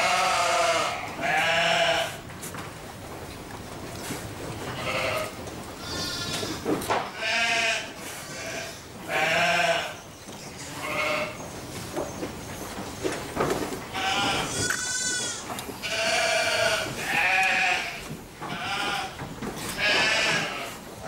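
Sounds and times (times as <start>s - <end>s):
sheep bleating: 0.0s - 2.2s, 4.8s - 10.0s, 10.8s - 11.4s, 13.9s - 20.8s.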